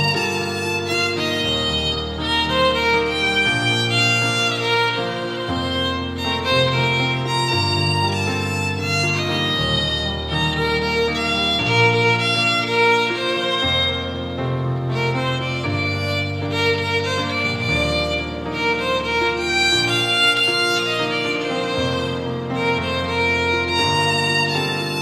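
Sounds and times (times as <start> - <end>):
violin melody: 0.0 - 25.0.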